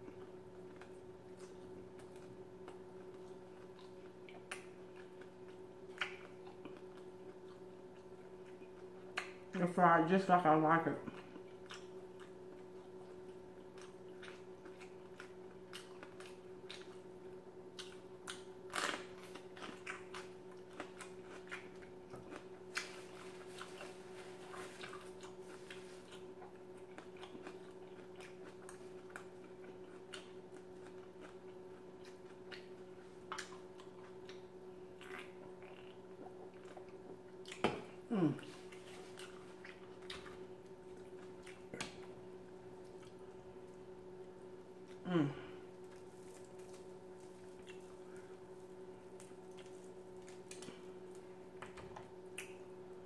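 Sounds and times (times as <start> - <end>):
steady low hum: 0.0 - 53.0
mouth chewing food: 11.0 - 42.2, 45.8 - 48.5.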